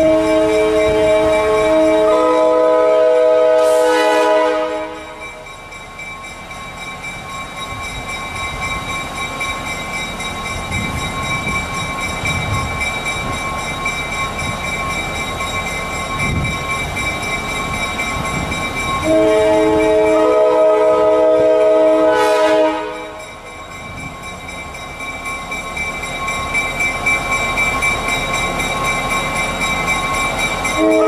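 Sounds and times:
locomotive horn chord: 0.0s - 5.2s, 19.0s - 23.2s, 30.8s - 31.0s
crossing signal bell ringing: 0.0s - 31.0s
diesel locomotive engine rumble: 0.0s - 31.0s.

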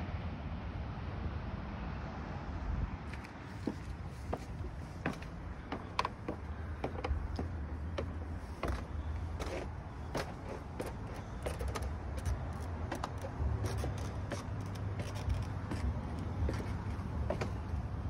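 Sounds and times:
footsteps on wood: 3.1s - 17.8s
handling clicks and knocks: 3.7s - 17.7s.

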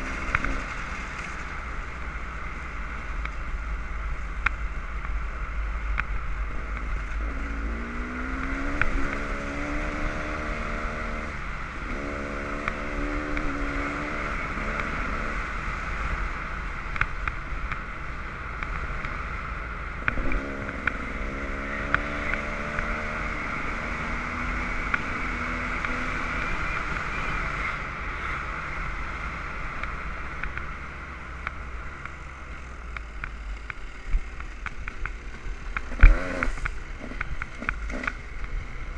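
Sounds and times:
dirt bike engine revving: 7.0s - 15.4s, 35.7s - 38.2s.

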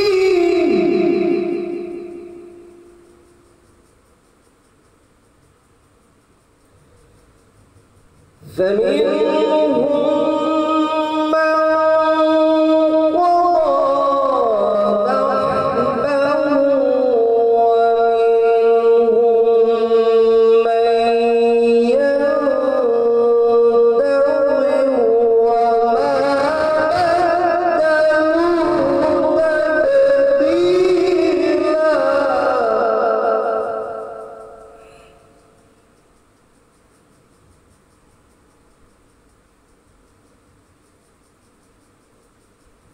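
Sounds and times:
man reciting melodically into microphone: 0.0s - 3.0s, 8.4s - 35.6s.

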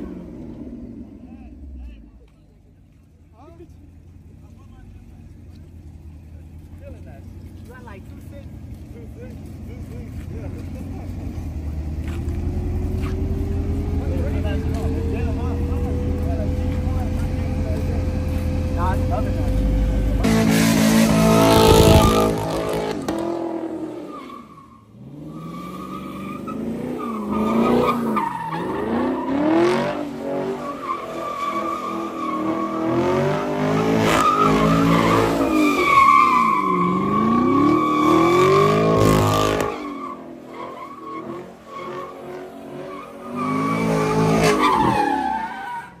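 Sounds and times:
car engine revving: 3.4s - 45.8s
tyres squealing: 24.0s - 46.0s.

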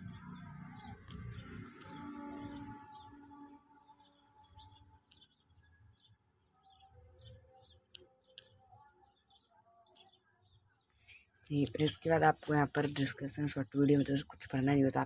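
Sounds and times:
sharp clicks: 0.9s - 2.6s, 5.0s - 5.3s.

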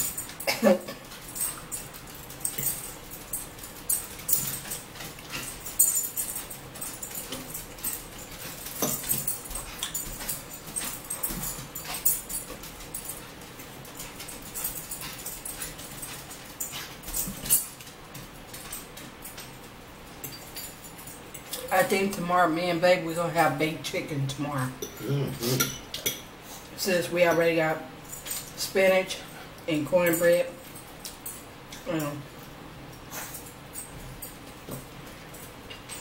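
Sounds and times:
metal forks clicking on plates: 0.0s - 19.5s, 24.8s - 26.3s.

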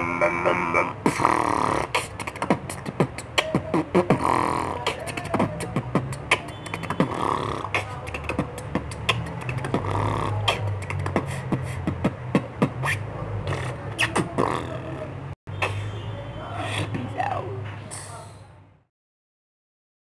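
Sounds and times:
beatbox drum sounds: 0.0s - 16.0s
pitched sliding mouth sounds: 0.0s - 16.0s.

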